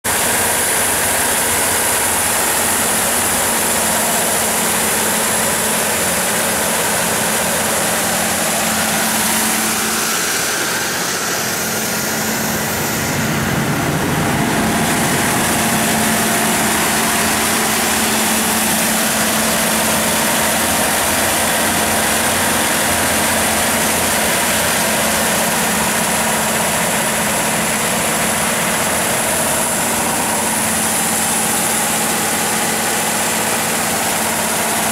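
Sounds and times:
diesel generator running: 0.0s - 34.9s
steady whine: 0.1s - 34.9s.

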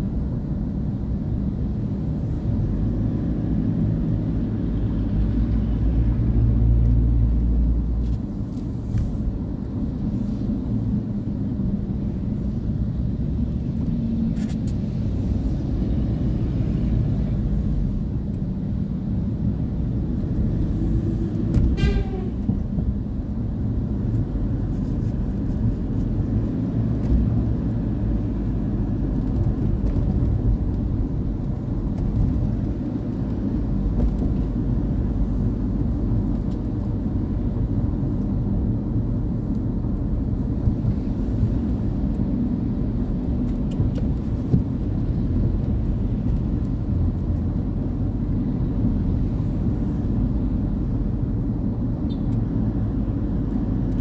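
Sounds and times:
car driving on wet road: 22.4s - 54.0s.

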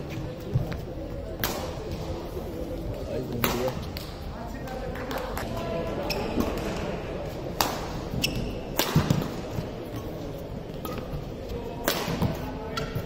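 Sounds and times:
badminton racket hitting shuttlecock: 7.5s - 9.4s.

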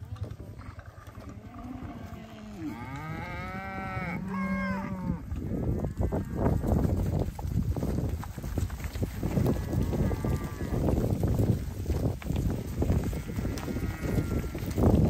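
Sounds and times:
hooves tramping on frosty ground: 0.0s - 15.0s
cow mooing: 0.6s - 5.3s.

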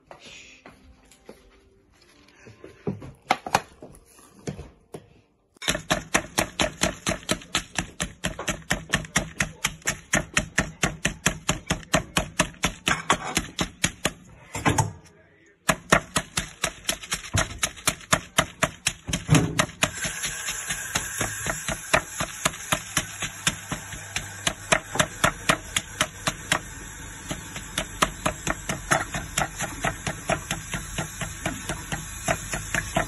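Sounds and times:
rolling pin thudding on meat: 27.3s - 33.0s.

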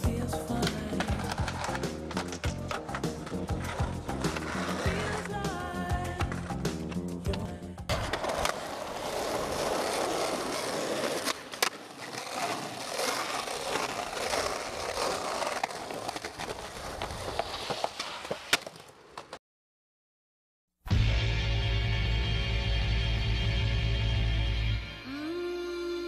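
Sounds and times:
skateboard wheels rolling on asphalt: 0.0s - 19.4s
skateboard popping and landing clacks: 0.5s - 19.4s.

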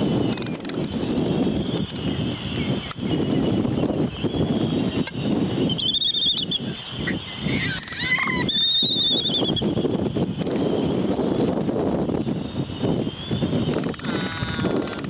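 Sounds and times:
wind on the microphone: 0.0s - 15.0s
albatross calls: 5.8s - 9.6s, 13.8s - 15.0s.

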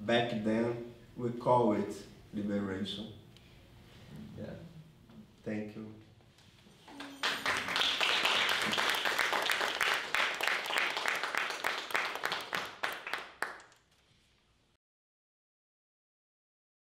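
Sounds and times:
audience applauding: 6.9s - 13.8s.

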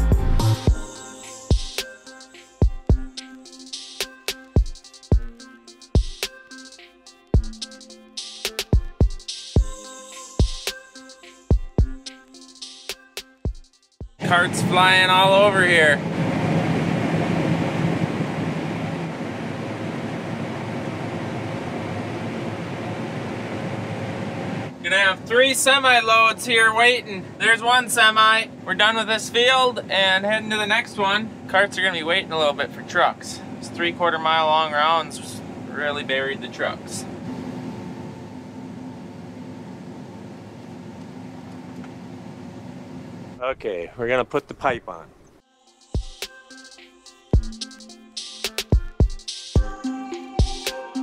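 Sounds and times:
combine harvester drone: 14.2s - 43.4s.

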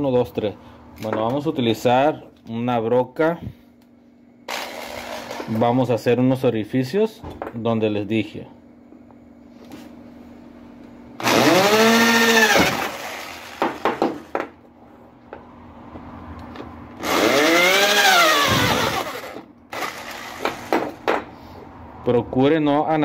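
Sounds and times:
electric drill boring metal: 4.5s - 5.5s, 11.2s - 13.6s, 17.0s - 20.7s.

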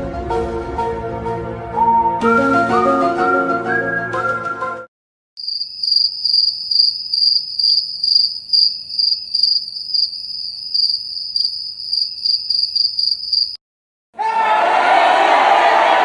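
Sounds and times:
crickets chirping: 5.4s - 13.6s.

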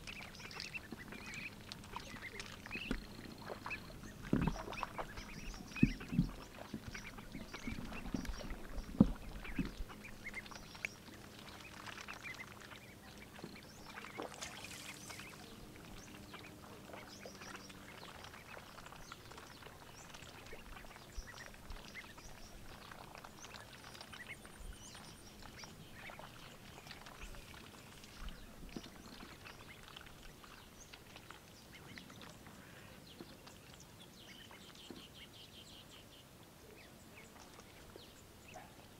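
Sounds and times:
water splashing: 0.0s - 34.8s.

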